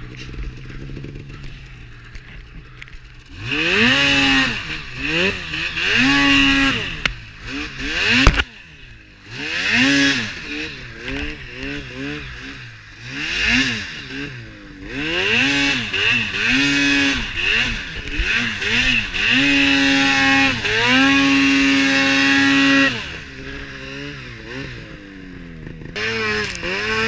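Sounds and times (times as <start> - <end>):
snowmobile engine revving: 0.0 - 27.0.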